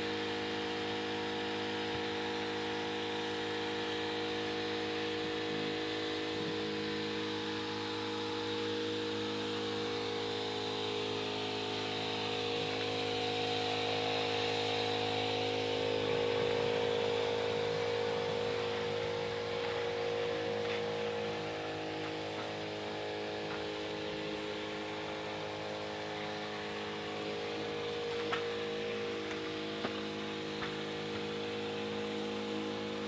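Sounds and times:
motor humming with hiss: 0:09.7 - 0:33.0.

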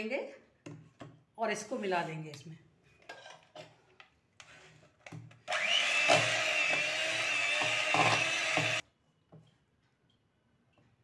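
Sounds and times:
electric hand mixer whipping cream: 0:05.5 - 0:08.8.

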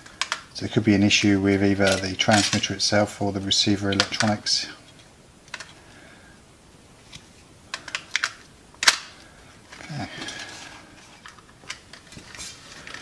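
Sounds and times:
handling rustle: 0:00.1 - 0:05.8, 0:07.0 - 0:13.0
plastic snap: 0:07.1 - 0:09.2.

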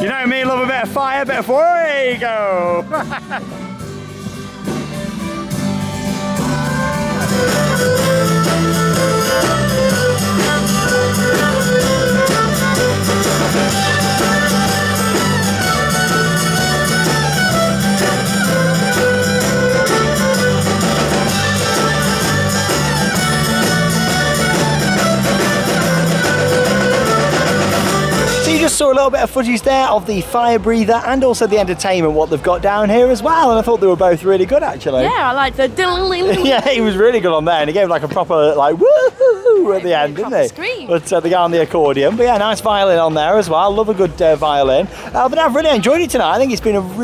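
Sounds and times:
fiddle: 0:00.0 - 0:29.9
folk band playing: 0:00.0 - 0:47.0.

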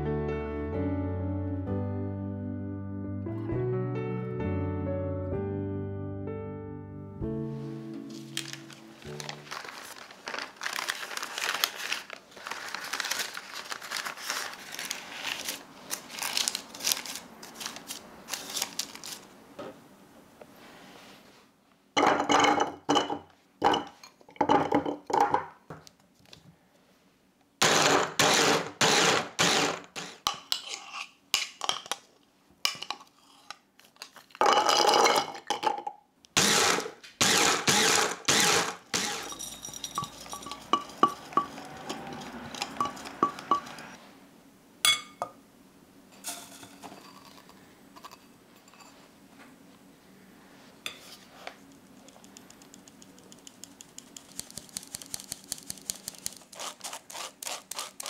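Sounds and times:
walnuts clattering in plastic bowl: 0:38.5 - 0:43.8
sieve rustling and ticking: 0:52.2 - 0:56.6.

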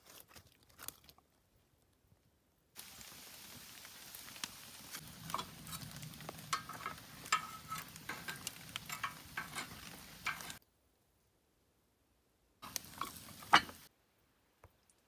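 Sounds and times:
wood fire crackling: 0:02.8 - 0:10.6, 0:12.6 - 0:13.9
metal tongs scraping in stove: 0:05.0 - 0:10.6, 0:12.6 - 0:13.9.

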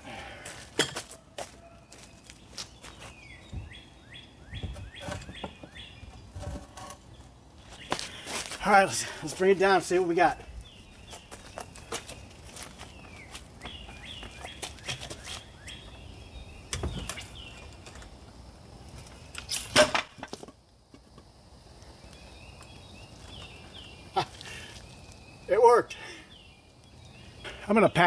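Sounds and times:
birds chirping: 0:01.2 - 0:19.8, 0:21.3 - 0:28.0
floor jack and wood clunks: 0:04.6 - 0:07.0.

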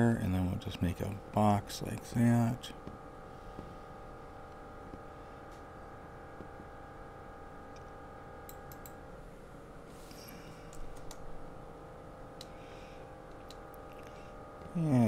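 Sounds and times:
faint steady hum: 0:00.0 - 0:15.0
computer mouse clicks: 0:08.5 - 0:09.0.

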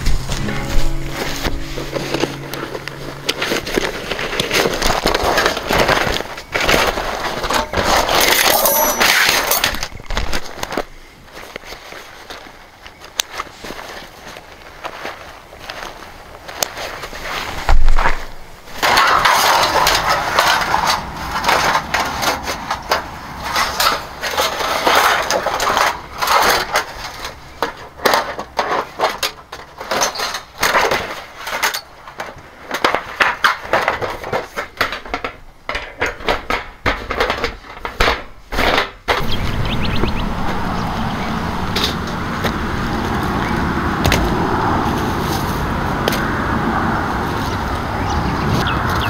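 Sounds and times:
steady low rumble: 0:00.0 - 0:06.0, 0:39.2 - 0:48.4
crunching and cracking wood: 0:01.5 - 0:46.5.

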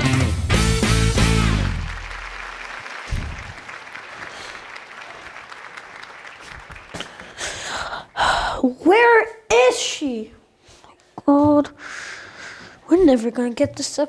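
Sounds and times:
guitar music: 0:00.0 - 0:02.3
applause: 0:01.0 - 0:07.8.

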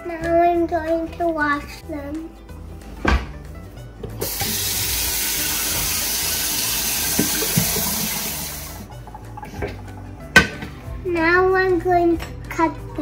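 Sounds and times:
faucet water running into sink: 0:04.2 - 0:10.4.

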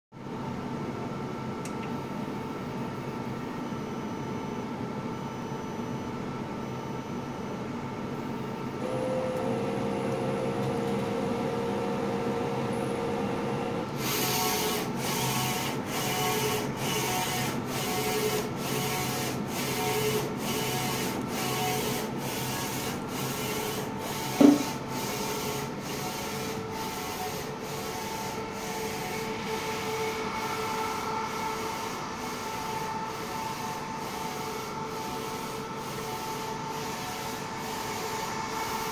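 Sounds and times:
machine hum: 0:08.8 - 0:38.9.

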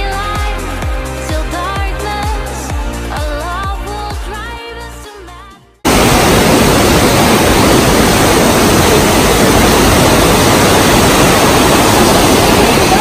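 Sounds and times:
waterfall rushing: 0:05.9 - 0:13.0.

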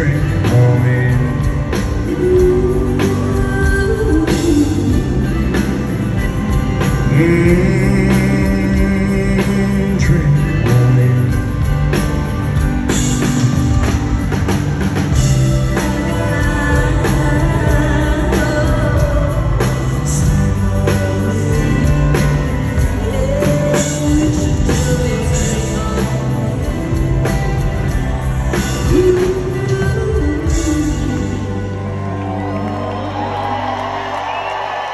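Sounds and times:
steady drum beat: 0:00.0 - 0:31.4
live band music: 0:00.0 - 0:34.9.

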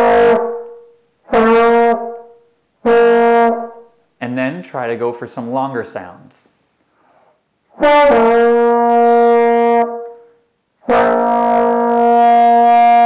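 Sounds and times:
trombone long notes: 0:00.0 - 0:03.9, 0:07.8 - 0:10.0, 0:10.8 - 0:13.0.

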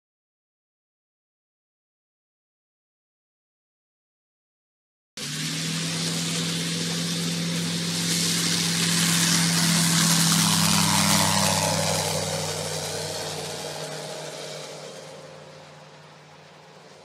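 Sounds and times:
propeller aircraft taking off: 0:05.2 - 0:17.0.

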